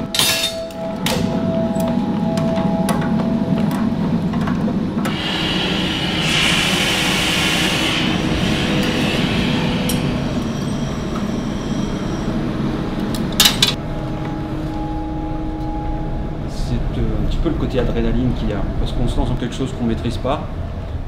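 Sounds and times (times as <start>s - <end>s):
gas furnace rushing: 0.0s - 13.8s.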